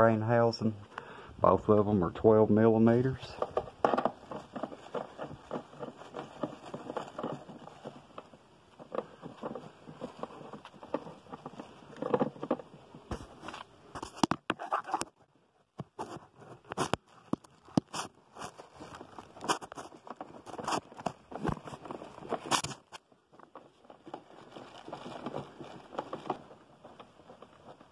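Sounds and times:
sharp clicks and knocks: 3.0s - 24.2s
plastic sheeting rustling: 17.9s - 23.0s, 23.6s - 27.9s.

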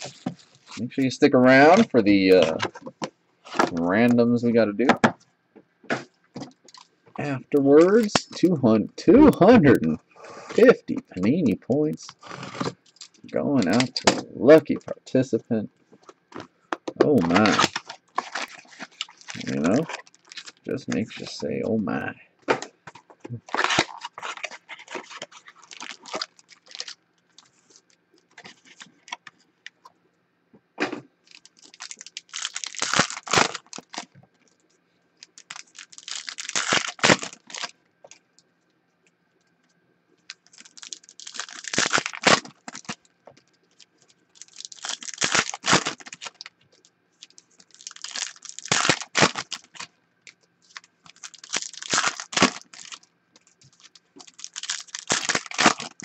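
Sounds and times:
foil wrappers tearing and crinkling: 0.0s - 0.9s, 12.2s - 14.1s, 16.3s - 21.4s, 23.4s - 29.2s, 31.2s - 34.2s, 35.2s - 37.7s, 40.3s - 49.9s, 50.6s - 56.0s.

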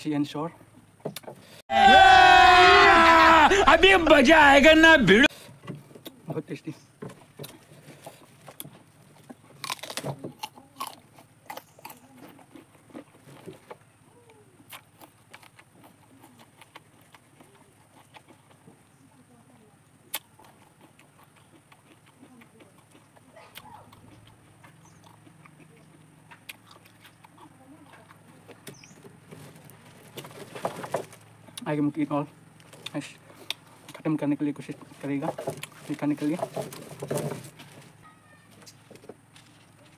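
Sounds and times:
crisp chewing crunches: 7.2s - 18.9s, 20.0s - 39.9s.

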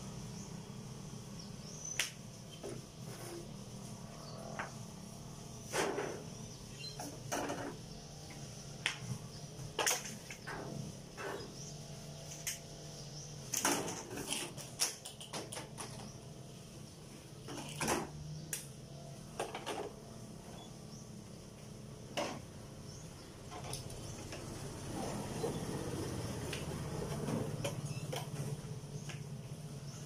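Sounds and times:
objects clicking and knocking: 9.7s - 11.4s, 13.5s - 16.2s, 17.4s - 18.2s.

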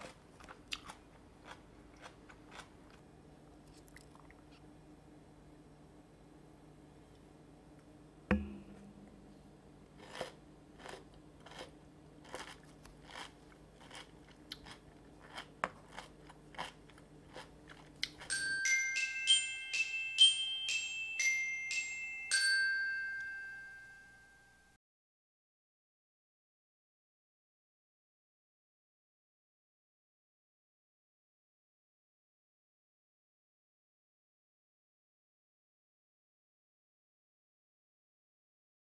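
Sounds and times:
sharp knock: 8.3s - 9.1s
glockenspiel-like chime melody: 18.3s - 24.8s.

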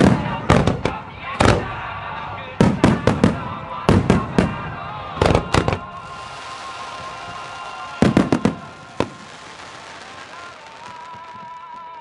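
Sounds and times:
rolling echo: 0.0s - 12.0s
firework shells bursting: 5.2s - 12.0s.

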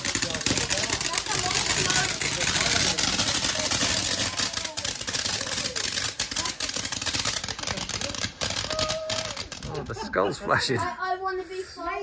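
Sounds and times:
firework fountain hissing and crackling: 0.0s - 11.9s.

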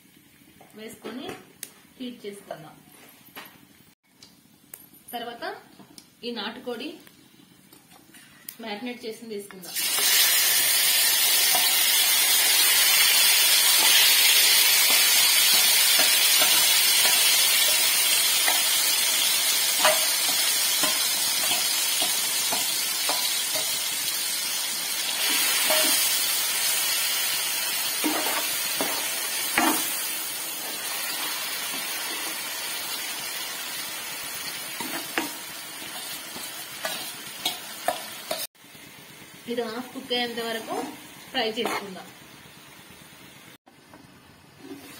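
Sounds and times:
chicken sizzling in hot oil: 9.7s - 43.6s.

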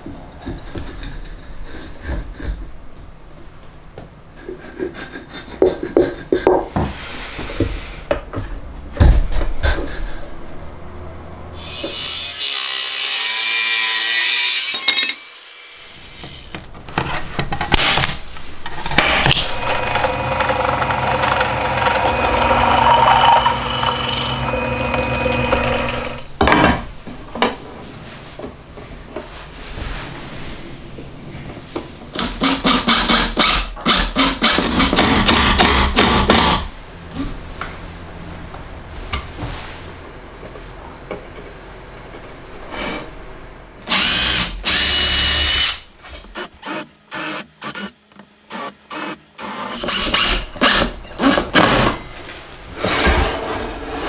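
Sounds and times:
power saw cutting wood: 11.6s - 16.5s, 19.0s - 26.3s.

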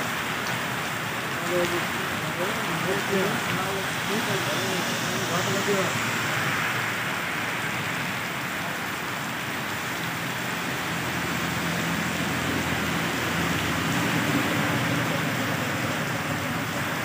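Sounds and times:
heavy rain on road: 0.0s - 17.0s.

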